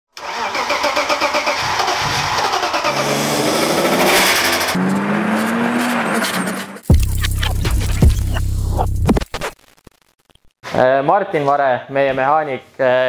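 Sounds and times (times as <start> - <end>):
car engine revving: 0.2 - 9.1.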